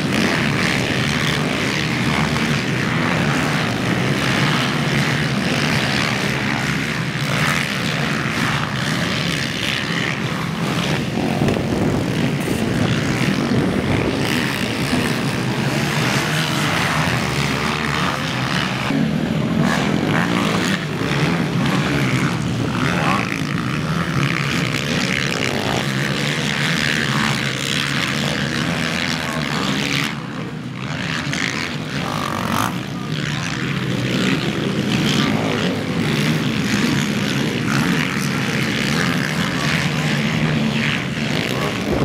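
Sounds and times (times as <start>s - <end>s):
quad bike engines revving: 0.0s - 42.0s.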